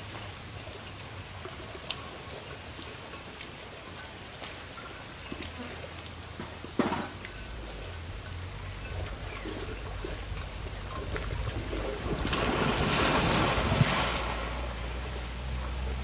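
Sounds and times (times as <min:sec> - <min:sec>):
high-pitched whine: 0:00.0 - 0:16.0
wind rumble on microphone: 0:08.2 - 0:16.0
animals splashing through water: 0:10.8 - 0:15.1.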